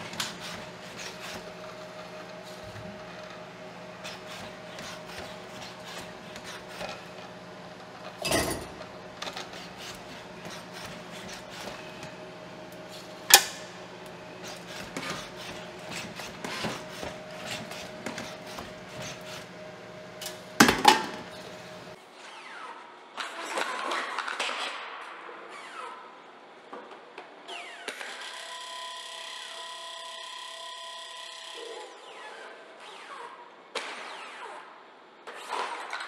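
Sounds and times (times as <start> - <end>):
electric motors humming: 0.0 - 22.7, 27.4 - 33.5
noisy mechanical whirring: 0.0 - 23.2, 25.6 - 36.0
dishes and glass clinking: 8.2 - 8.9.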